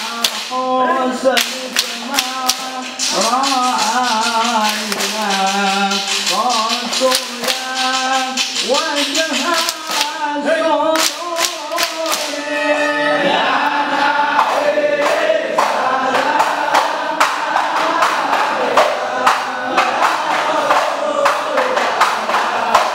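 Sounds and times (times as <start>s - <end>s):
hand clapping: 0.0s - 0.6s, 1.3s - 12.6s, 13.7s - 22.9s
sharp percussive strikes: 0.0s - 0.7s, 1.3s - 12.7s, 13.8s - 22.9s
men singing a chant: 0.0s - 22.9s.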